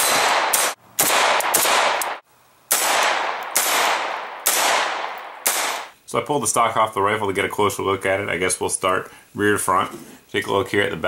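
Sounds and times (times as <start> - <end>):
rifle shots with echo: 0.0 - 5.9.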